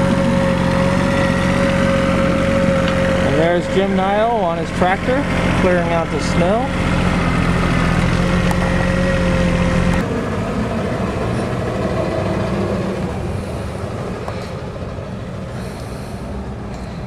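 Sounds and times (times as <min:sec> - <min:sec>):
steady rumbling noise: 0:00.0 - 0:17.0
tractor engine running: 0:00.0 - 0:17.0.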